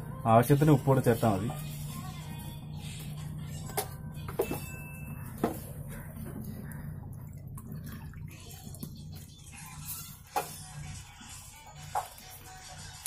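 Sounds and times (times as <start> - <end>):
steady low hum: 0.0 - 9.3.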